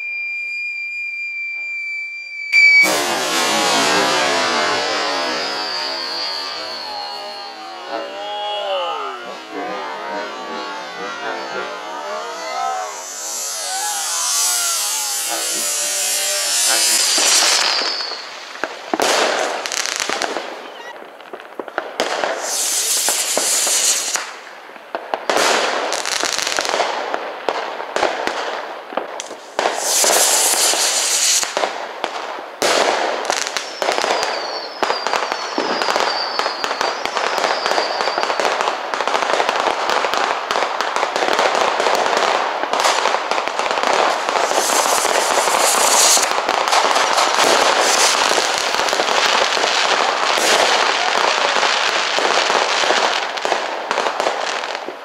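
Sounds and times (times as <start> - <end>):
falling whistles: 0.0 - 18.6, 29.7 - 31.6, 33.4 - 38.6, 43.7 - 51.6
fireworks hissing: 2.5 - 20.6, 21.3 - 26.8, 29.2 - 55.0
fireworks crackling and banging: 2.5 - 55.0.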